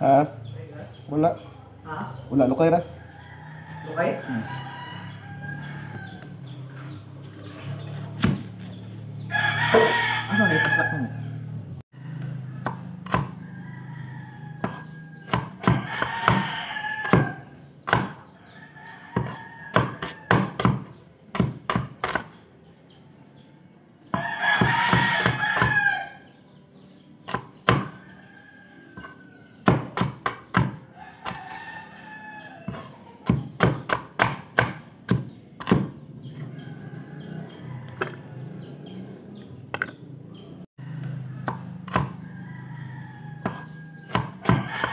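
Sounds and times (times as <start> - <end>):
rooster crowing: 3.0 - 6.6, 9.3 - 11.4, 12.0 - 17.5, 18.4 - 20.7, 24.2 - 26.3, 27.7 - 29.6, 31.0 - 33.0, 36.4 - 39.0, 40.8 - 44.9
cleaver chopping on wooden board: 8.2 - 8.6, 12.6 - 13.4, 14.6 - 18.2, 19.2 - 22.4, 24.1 - 25.8, 27.3 - 28.0, 29.0 - 31.6, 32.7 - 36.0, 41.0 - 42.2, 43.4 - 44.9.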